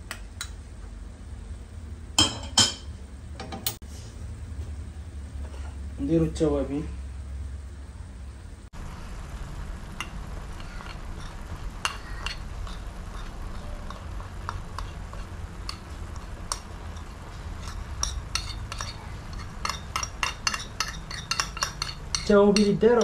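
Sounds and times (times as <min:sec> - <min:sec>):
low steady hum: 0:00.0 - 0:23.0
metal spoon scraping a plate: 0:10.6 - 0:22.7.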